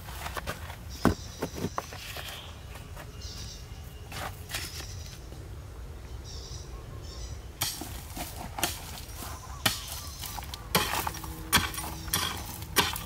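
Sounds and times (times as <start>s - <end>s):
digging tool striking stony earth: 7.6s - 13.0s
soil and gravel scattering: 7.6s - 13.0s.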